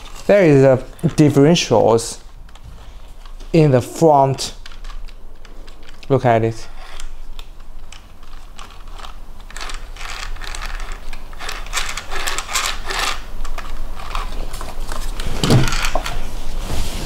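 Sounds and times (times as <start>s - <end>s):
plastic gears clicking and rattling: 4.4s - 16.2s.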